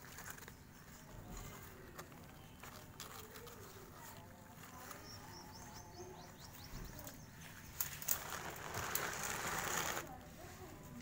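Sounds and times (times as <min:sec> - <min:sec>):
scratchy rustle: 0:07.4 - 0:11.0.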